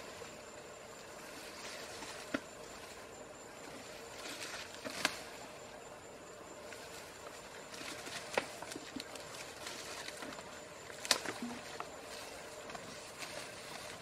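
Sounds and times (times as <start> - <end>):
grass rustling: 0.0 - 14.0
stems snapping: 7.7 - 11.9.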